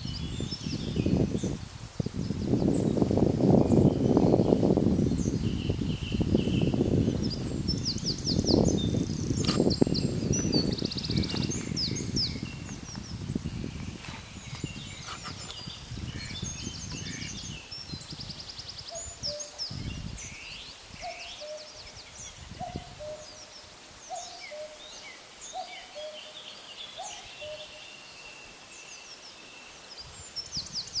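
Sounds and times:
birdsong trills and chirps: 0.0 - 31.0.

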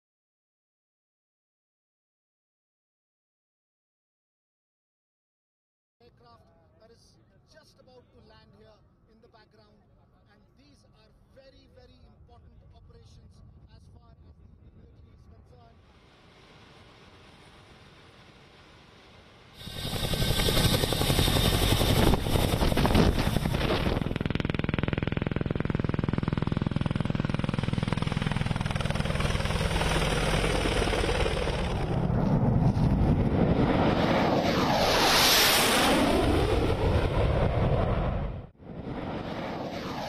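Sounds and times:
helicopter rotor and turbine: 15.3 - 40.0
jet flying past: 30.0 - 40.0.

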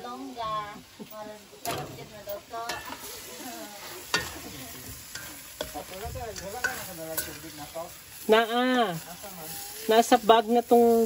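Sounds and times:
shrimp sizzling in a wok: 0.0 - 11.0
spoon clinking against pan: 6.4 - 7.5.

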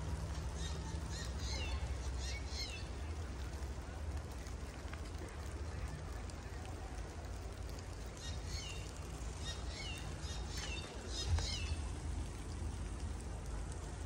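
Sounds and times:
songbird calling: 8.2 - 11.9.

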